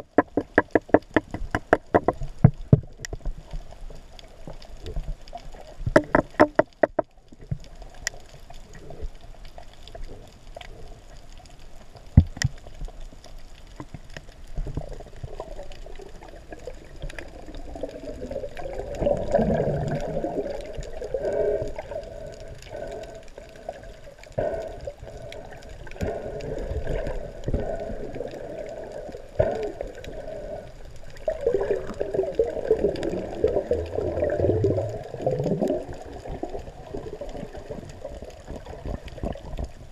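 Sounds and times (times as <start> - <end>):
water gurgling underwater: 0.0 - 10.9, 11.9 - 39.9
bubbly swells: 14.6 - 39.9.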